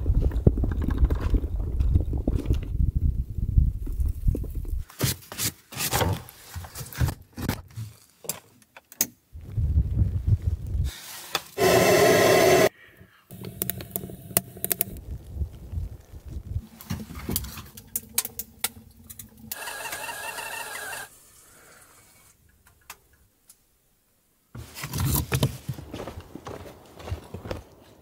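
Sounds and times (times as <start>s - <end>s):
fire crackling: 9.3s - 12.7s, 13.3s - 23.2s
kettle whistling: 11.6s - 12.7s, 19.1s - 21.2s
loud noise: 11.6s - 12.7s
torch lighter hissing: 11.6s - 12.7s.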